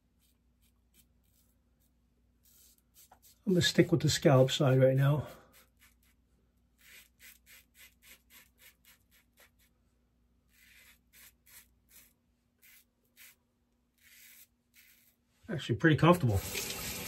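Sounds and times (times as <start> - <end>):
razor scraping stubble: 0.0 - 1.6, 2.4 - 9.8, 10.5 - 15.2.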